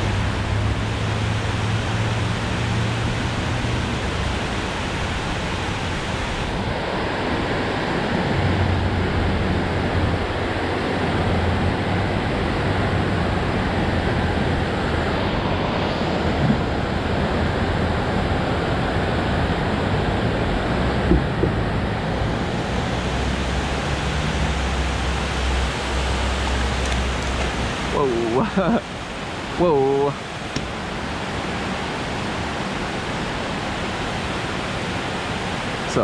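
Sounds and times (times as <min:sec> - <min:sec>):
low rumble: 0:13.1 - 0:17.8
water pouring over dam spillway: 0:22.4 - 0:36.0.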